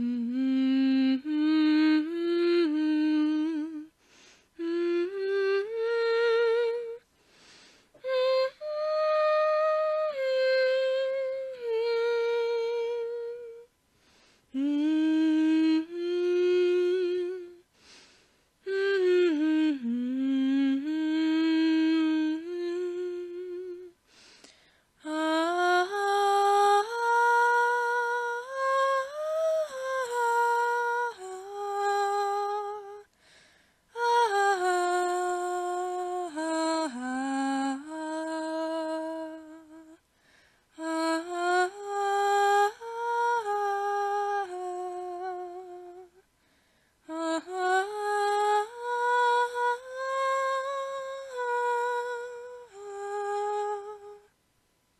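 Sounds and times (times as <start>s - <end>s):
person humming slow melody: 0.0s - 24.3s, 40.8s - 46.3s, 47.0s - 54.3s.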